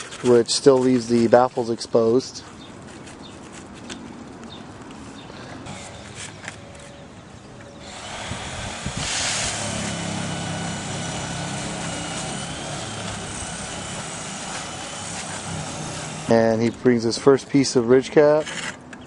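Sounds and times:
motor running: 7.8 - 16.4.

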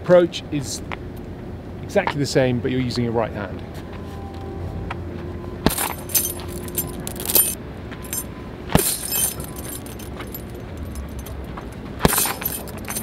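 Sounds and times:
chains jangling: 5.7 - 13.0
punches thudding on punch bag: 8.7 - 10.0, 12.0 - 13.0.

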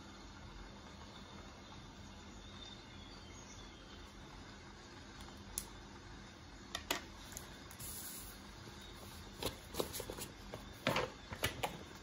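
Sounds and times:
paper rustling: 9.0 - 11.6.

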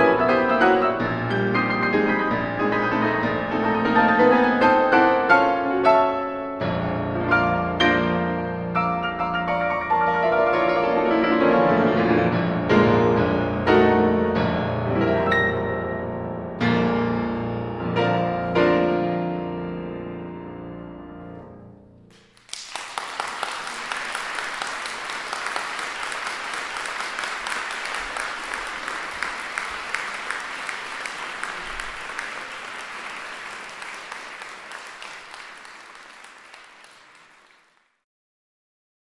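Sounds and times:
audience applauding: 22.1 - 38.0.

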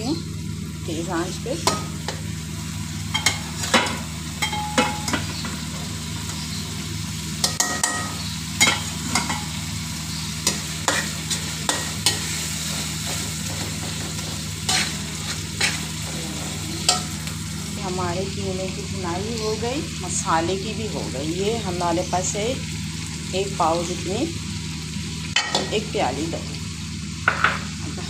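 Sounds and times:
meat sizzling in a pan: 0.0 - 28.0
metal spatula scraping a pan: 10.4 - 17.3.

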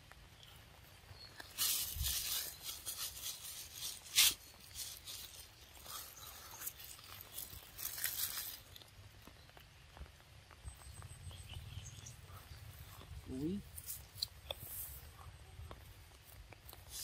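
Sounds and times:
monkey tearing and crunching fruit: 1.2 - 10.1, 11.9 - 15.1.

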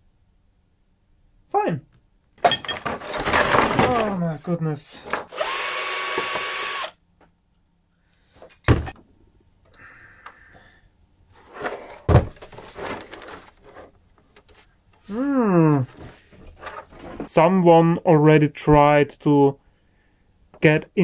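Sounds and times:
cordless drill whirring: 5.2 - 7.0
plastic monitor thumps: 12.0 - 12.6.

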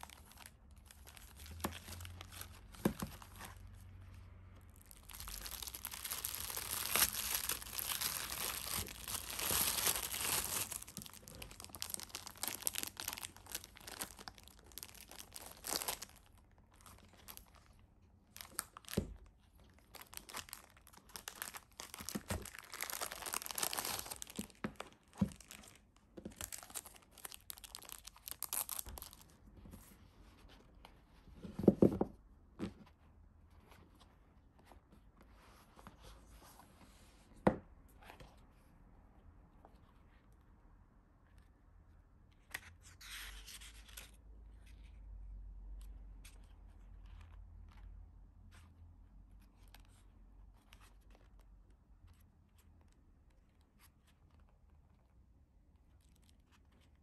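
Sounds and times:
crinkly packaging rustling: 0.0 - 3.8, 4.7 - 30.6.

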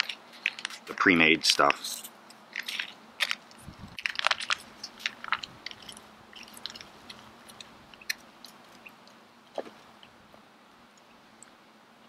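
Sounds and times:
foil pouch crinkling: 0.0 - 8.9.

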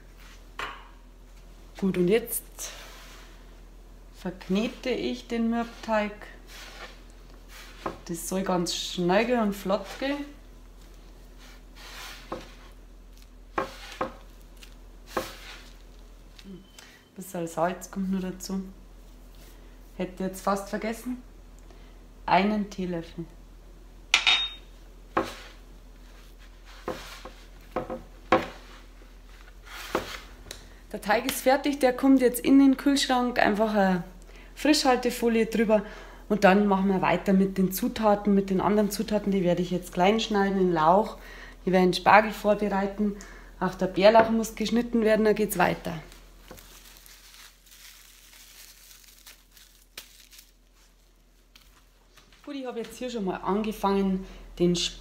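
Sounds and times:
soft rubbing of dough: 0.0 - 0.6, 1.2 - 16.7, 17.7 - 20.8, 25.1 - 30.4, 43.7 - 53.1.

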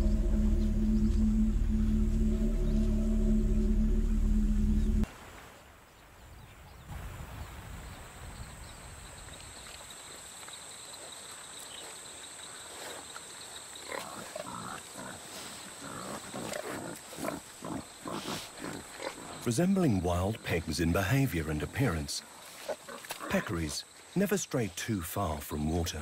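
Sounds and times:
high drone of night forest: 0.0 - 26.0.

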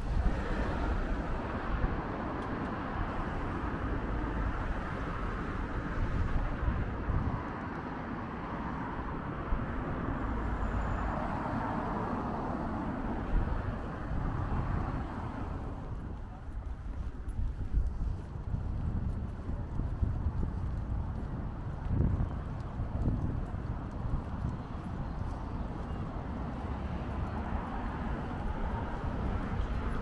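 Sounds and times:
city street traffic: 0.0 - 30.0.

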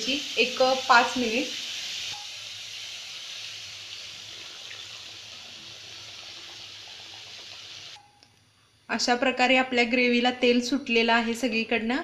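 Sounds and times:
water hissing into hot paste: 0.0 - 8.0.

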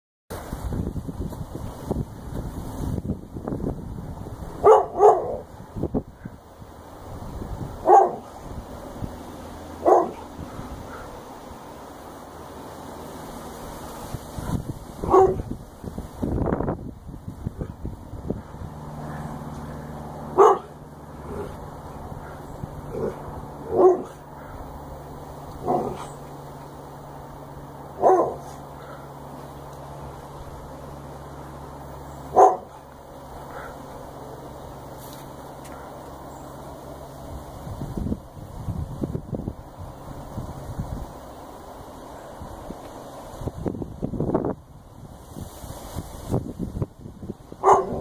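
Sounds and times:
dog barking: 4.6 - 5.4, 7.8 - 8.3, 9.8 - 10.2, 15.0 - 15.5, 20.4 - 20.7, 23.7 - 24.2, 28.0 - 28.5, 32.3 - 32.8, 47.6 - 48.0.

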